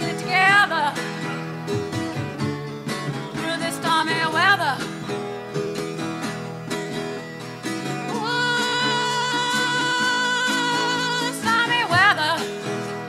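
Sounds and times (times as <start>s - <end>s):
woman singing: 0.0s - 1.1s, 3.4s - 5.0s, 8.1s - 13.0s
guitar accompaniment: 0.0s - 13.0s.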